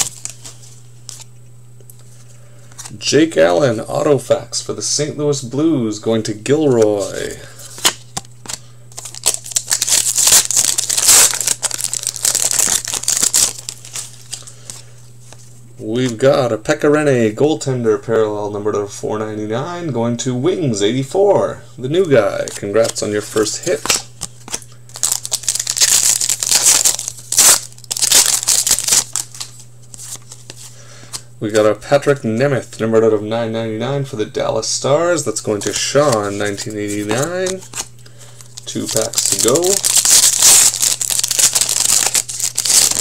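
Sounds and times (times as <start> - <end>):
foil wrapper tearing and crinkling: 7.1 - 14.8, 22.8 - 30.4, 36.1 - 43.0.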